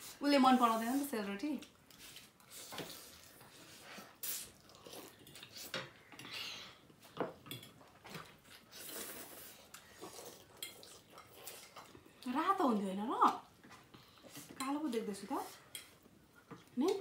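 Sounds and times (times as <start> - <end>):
people slurping noodles: 8.5 - 11.8.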